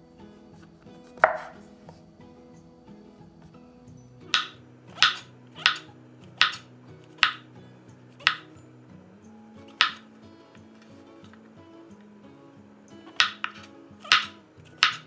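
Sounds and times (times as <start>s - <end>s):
soft background music: 0.0s - 15.0s
knife knocking on wooden board: 1.2s - 1.6s.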